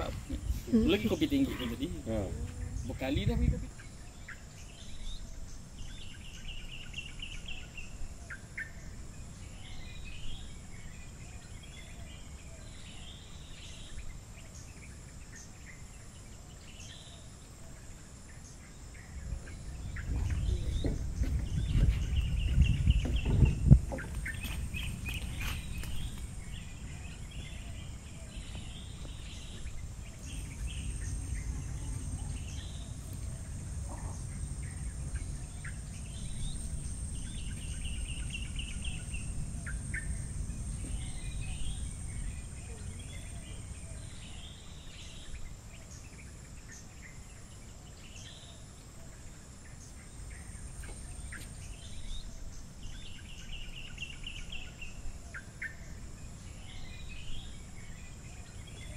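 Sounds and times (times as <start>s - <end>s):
high-pitched whine: 0.0s - 46.3s
birds chirping: 0.0s - 58.9s
low rumble: 19.2s - 44.6s.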